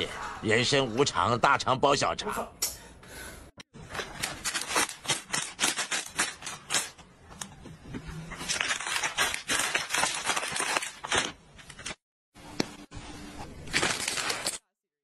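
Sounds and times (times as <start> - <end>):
plastic packaging crinkling: 8.4 - 12.0, 13.6 - 14.8.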